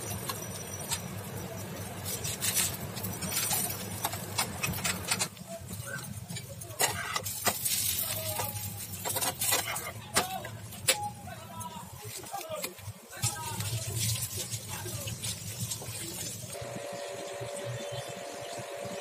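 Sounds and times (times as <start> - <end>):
frying sizzle: 0.0 - 10.9, 13.1 - 19.0
metal spatula scraping frying pan: 6.8 - 10.1.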